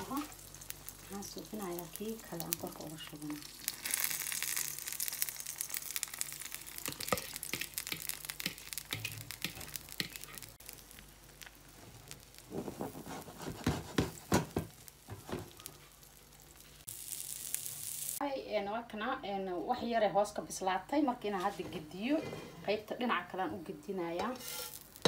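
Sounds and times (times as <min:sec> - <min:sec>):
egg sizzling in a pan: 0:00.0 - 0:18.3, 0:24.2 - 0:25.0
knocks and scrapes: 0:12.5 - 0:15.6.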